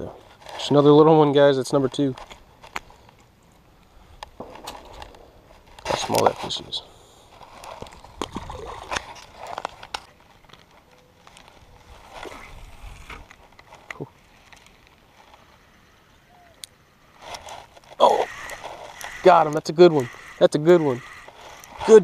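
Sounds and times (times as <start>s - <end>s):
fishing reel clicks and rustles: 17.1s - 22.0s.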